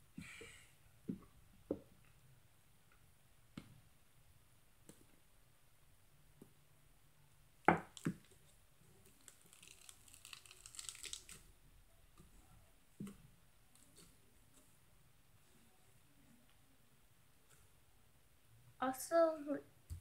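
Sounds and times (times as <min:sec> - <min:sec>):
slime crackling through mesh: 0:07.8 - 0:11.5.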